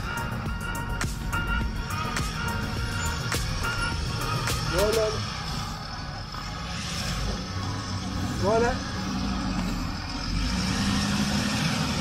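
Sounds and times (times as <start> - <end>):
sharp beats: 0.0 - 5.8
held synth notes: 0.0 - 12.0.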